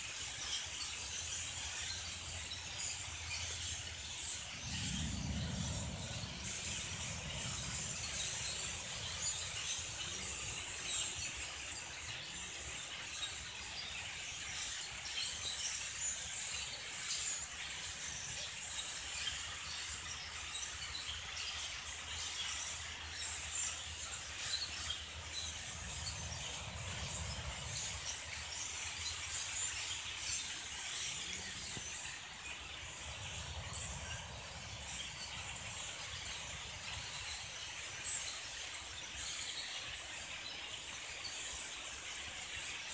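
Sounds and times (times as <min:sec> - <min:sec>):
flock of blackbirds chattering: 0:00.0 - 0:42.9
low rumble: 0:04.4 - 0:10.0.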